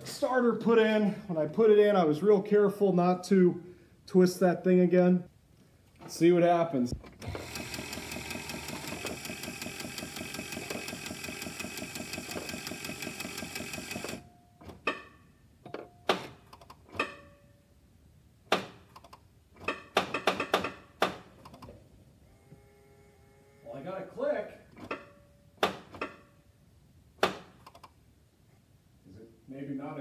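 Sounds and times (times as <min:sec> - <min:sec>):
starter cranking engine: 0:07.1 - 0:14.2.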